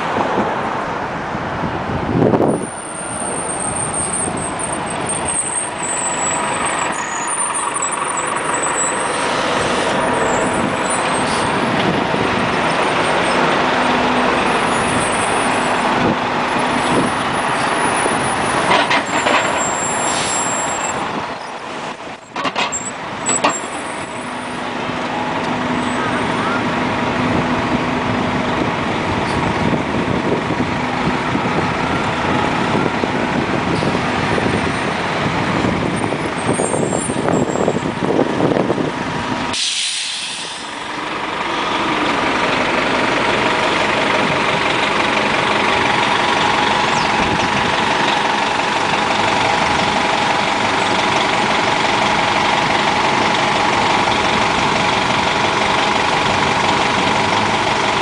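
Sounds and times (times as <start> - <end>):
bus diesel engines running: 0.0 - 58.0
short sharp hiss: 39.6 - 40.7.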